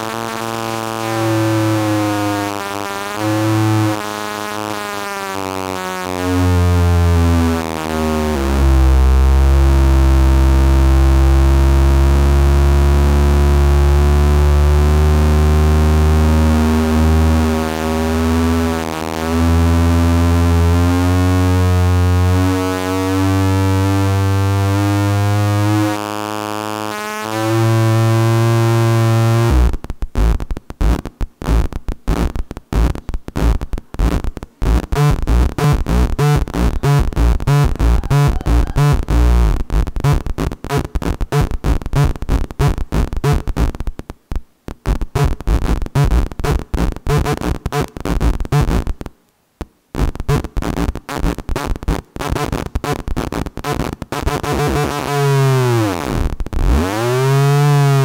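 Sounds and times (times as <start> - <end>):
steady electronic tone: 0.0 - 40.2
stuttering electronic pulses: 0.0 - 43.5.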